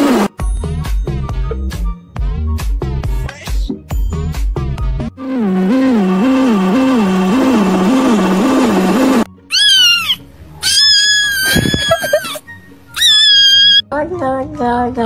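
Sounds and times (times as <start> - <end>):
kitten meowing: 9.5 - 12.4, 13.0 - 13.8.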